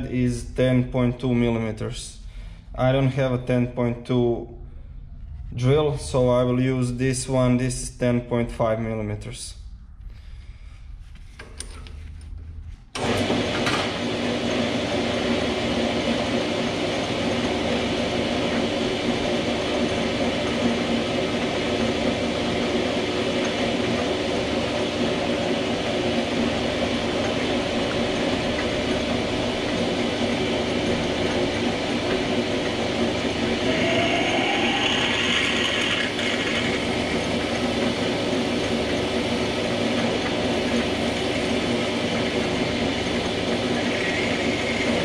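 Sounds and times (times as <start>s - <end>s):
metal lathe clattering whine: 12.9s - 45.0s.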